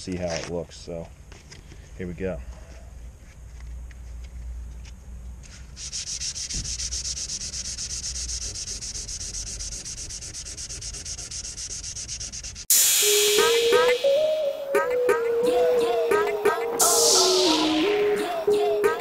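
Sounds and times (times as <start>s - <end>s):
hand sanding with sandpaper: 5.4s - 12.7s.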